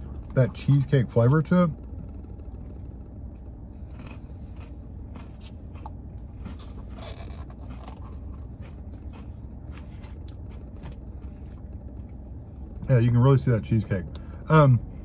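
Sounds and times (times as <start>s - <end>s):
low hum in car cabin: 0.0s - 15.0s.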